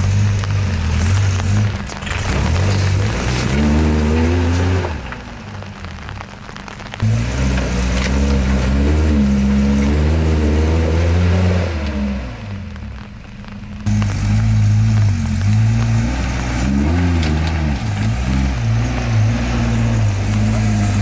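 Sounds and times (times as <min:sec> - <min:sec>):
truck engine revving: 0:00.0 - 0:21.0.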